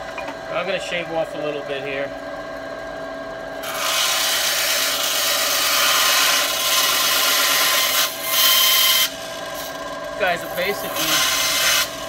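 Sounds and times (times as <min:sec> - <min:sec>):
band saw cutting plastic pipe: 0:03.6 - 0:12.0
saw motor humming: 0:03.6 - 0:12.0.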